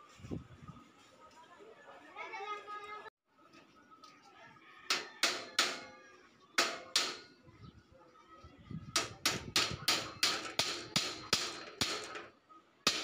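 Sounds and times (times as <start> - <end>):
hammer striking steel: 4.9 - 5.9, 6.6 - 7.4, 9.0 - 12.3.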